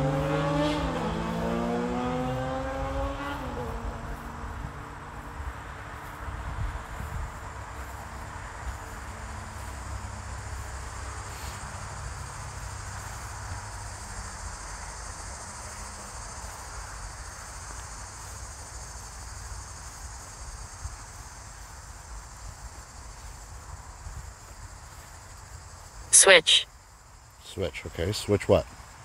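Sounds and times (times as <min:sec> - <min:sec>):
insects trilling: 0:07.2 - 0:29.0.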